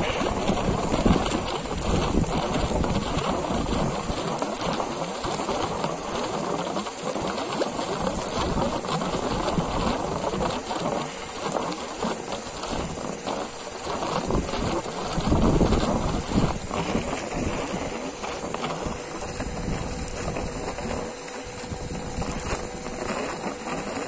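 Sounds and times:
muddy water spattering from hose: 0:00.0 - 0:24.0.

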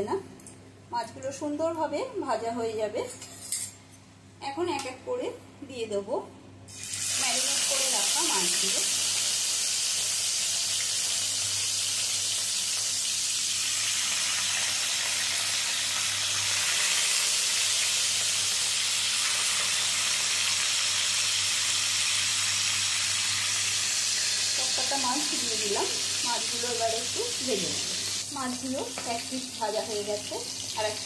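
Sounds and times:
fish sizzling in hot oil: 0:06.7 - 0:31.0.

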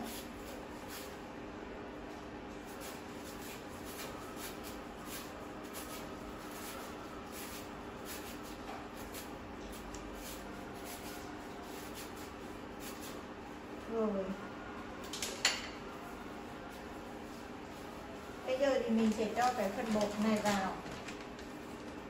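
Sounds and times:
steady low hum: 0:00.0 - 0:20.0
sweet potato being shredded: 0:02.7 - 0:13.2.

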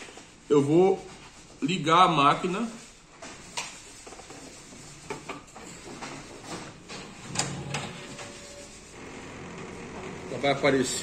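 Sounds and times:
copier machine hum: 0:06.6 - 0:11.0.

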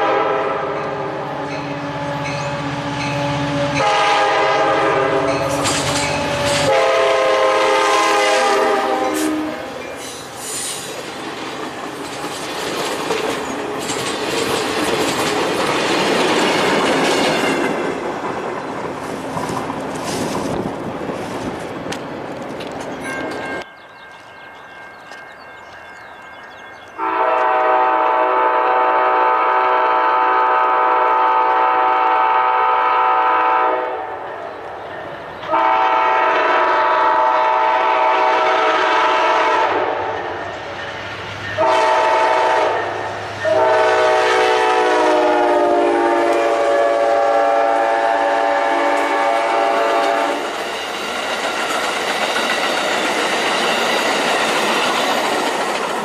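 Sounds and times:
locomotive air horn blasts: 0:00.0 - 0:01.1, 0:03.2 - 0:05.6, 0:06.2 - 0:09.8, 0:27.0 - 0:34.3, 0:35.5 - 0:40.2, 0:41.6 - 0:50.5
passenger cars rumbling and clattering: 0:10.0 - 0:23.7.

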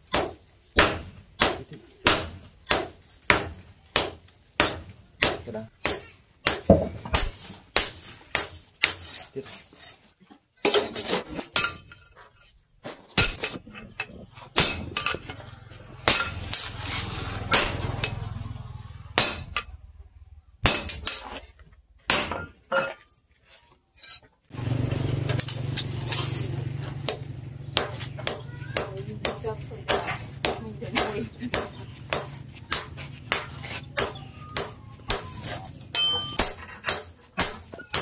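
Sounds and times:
hammer striking metal blade: 0:14.6 - 0:15.3, 0:16.0 - 0:16.8, 0:17.4 - 0:18.3, 0:19.1 - 0:19.8, 0:20.6 - 0:21.3, 0:27.8 - 0:38.0.

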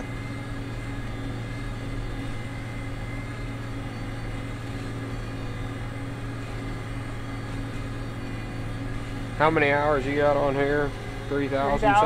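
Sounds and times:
tractor diesel engine under load: 0:00.0 - 0:12.0.

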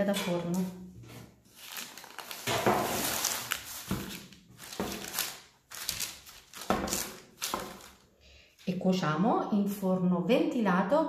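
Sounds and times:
parchment paper rustling: 0:00.5 - 0:08.2.

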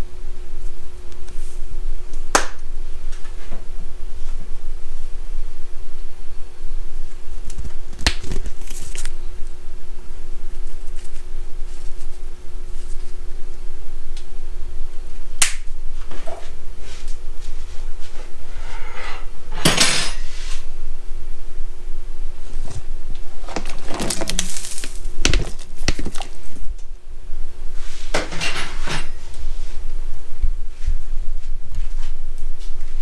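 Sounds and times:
steady low hum: 0:00.0 - 0:33.0
utensils clattering against a pot: 0:28.2 - 0:29.2.

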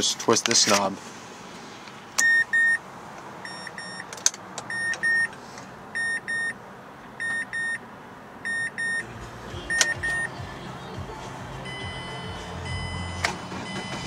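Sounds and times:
car warning chime double beeps: 0:02.2 - 0:02.8, 0:03.4 - 0:04.1, 0:04.7 - 0:05.3, 0:06.0 - 0:06.6, 0:07.2 - 0:07.8, 0:08.4 - 0:10.4, 0:11.6 - 0:14.0.

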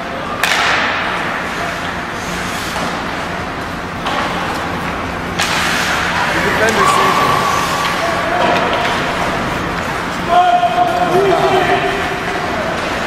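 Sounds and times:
arena noise: 0:05.6 - 0:13.0.

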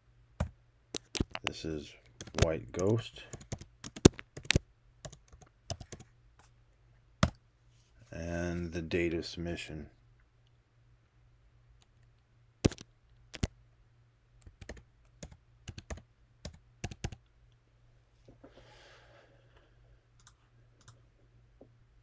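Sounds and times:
computer keyboard key taps: 0:03.4 - 0:06.0, 0:12.7 - 0:13.5.

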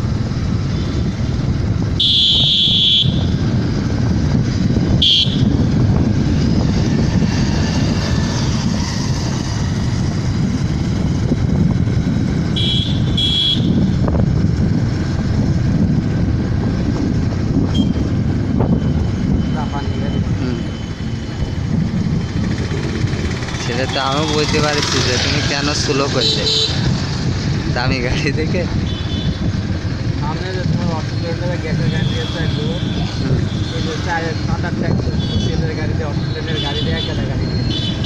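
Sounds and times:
truck engine and road noise: 0:00.0 - 0:38.0
high horn blasts: 0:02.0 - 0:03.3, 0:05.0 - 0:05.5, 0:12.5 - 0:13.9.

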